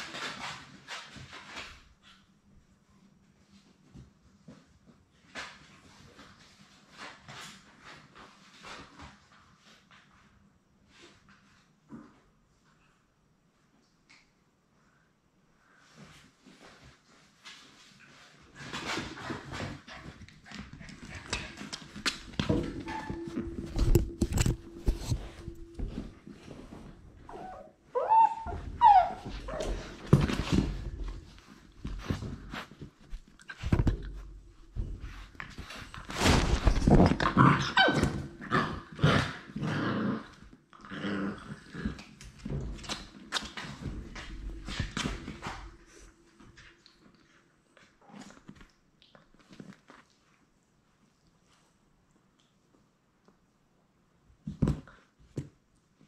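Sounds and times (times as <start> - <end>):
puppy paws clicking and scraping: 16.7 - 26.0.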